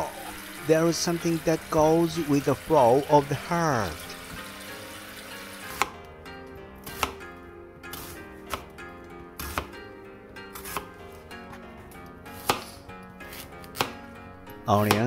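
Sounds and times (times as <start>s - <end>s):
soft background music: 0.0s - 15.0s
knife chopping on plastic board: 5.7s - 6.0s, 6.8s - 7.3s, 7.9s - 8.8s, 9.4s - 9.8s, 10.5s - 10.9s, 12.4s - 14.1s, 14.7s - 15.0s.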